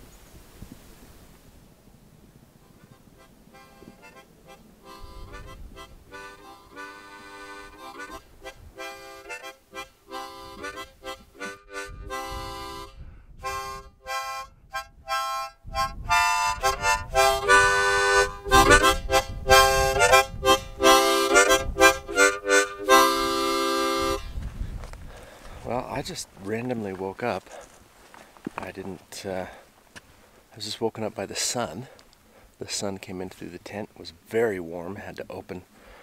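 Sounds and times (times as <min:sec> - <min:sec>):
background music melody: 0:02.6 - 0:24.3.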